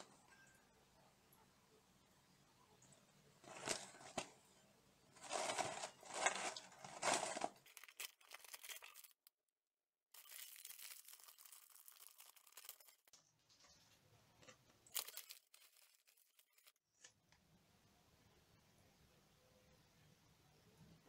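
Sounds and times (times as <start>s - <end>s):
foil bag crinkling: 3.4s - 4.3s, 5.2s - 9.3s, 10.2s - 16.8s
cardboard box scraping: 5.2s - 7.6s
cardboard ripping: 5.2s - 9.0s.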